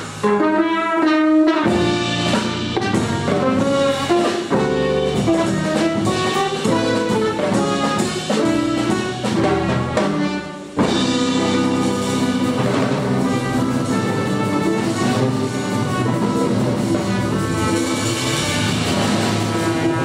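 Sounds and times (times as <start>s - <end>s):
double bass: 0.0s - 20.0s
drum kit: 0.0s - 20.0s
trumpet melody: 0.1s - 20.0s.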